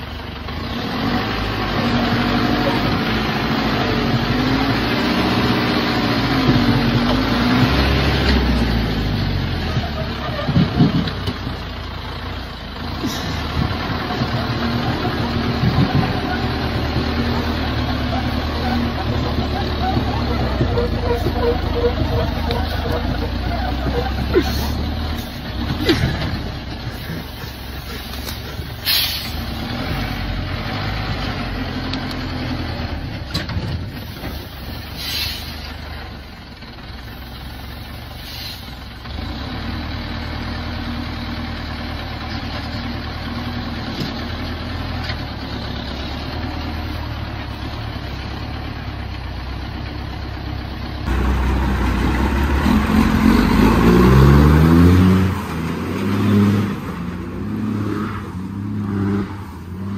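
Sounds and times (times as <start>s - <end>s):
heavy truck engine revving: 0.0s - 59.9s
truck diesel engine running: 0.0s - 59.9s
short air hisses: 28.8s - 29.4s, 34.0s - 35.7s, 38.2s - 38.8s.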